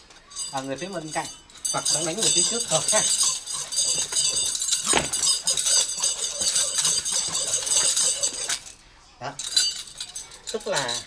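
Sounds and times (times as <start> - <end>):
nunchaku chain jangling: 0.3 - 8.8, 9.4 - 11.0
thump: 4.9 - 5.3.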